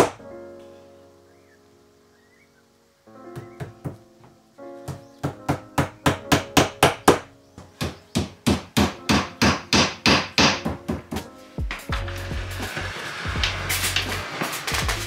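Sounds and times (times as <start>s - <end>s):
hammer nailing hardboard: 0.0s - 0.2s, 4.9s - 11.3s.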